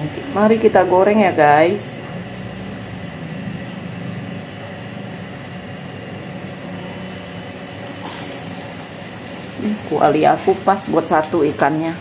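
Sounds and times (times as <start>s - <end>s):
gas burner hissing: 5.7s - 12.0s.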